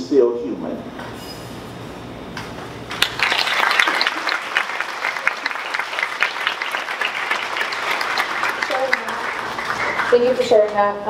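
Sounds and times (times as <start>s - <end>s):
audience applauding: 2.9s - 10.7s.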